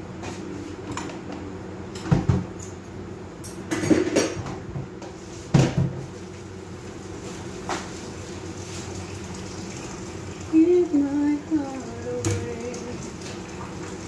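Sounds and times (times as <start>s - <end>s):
dishes and kitchenware clattering: 3.5s - 4.6s.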